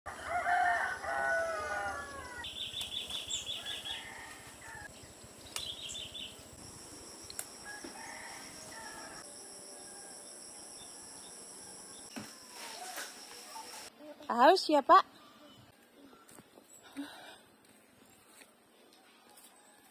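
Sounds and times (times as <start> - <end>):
rooster crowing: 0.1 - 2.5, 3.5 - 4.9, 7.6 - 11.3
high insect drone: 0.1 - 13.9.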